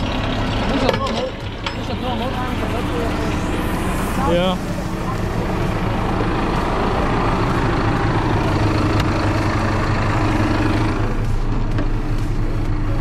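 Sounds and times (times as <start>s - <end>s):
diesel engine running steadily: 0.0s - 13.0s.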